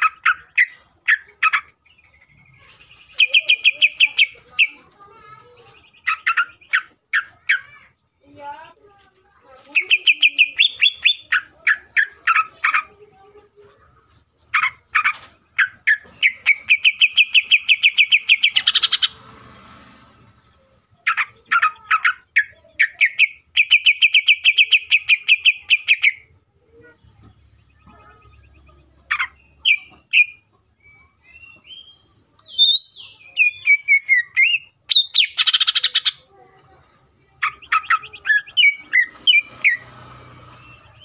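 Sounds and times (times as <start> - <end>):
bird singing sharp chirps: 9.8 - 12.5, 14.6 - 19.2, 27.4 - 36.2, 37.4 - 41.0.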